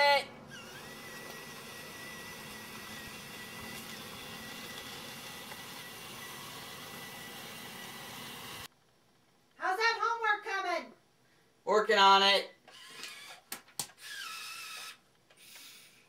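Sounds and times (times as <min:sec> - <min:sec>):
electric motors whirring: 0:00.0 - 0:08.7, 0:12.7 - 0:13.4, 0:14.0 - 0:15.9.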